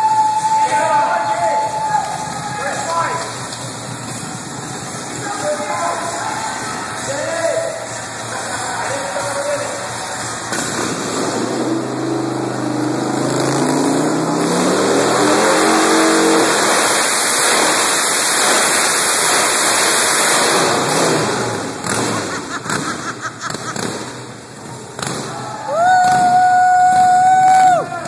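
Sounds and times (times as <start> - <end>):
motorcycle engine revving: 7.8 - 25.4.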